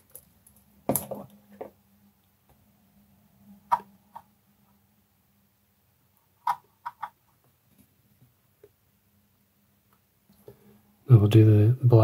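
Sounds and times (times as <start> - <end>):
paint pots clicking and tapping: 6.4 - 8.8.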